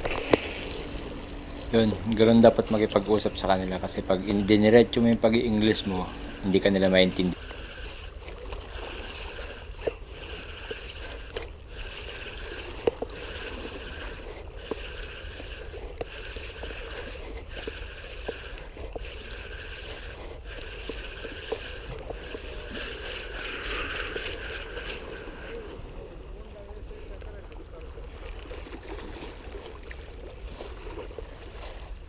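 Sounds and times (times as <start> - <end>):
small waves lapping on rocks: 0.0 - 32.0
light ticks: 5.1 - 6.1, 16.0 - 18.4, 23.6 - 25.0.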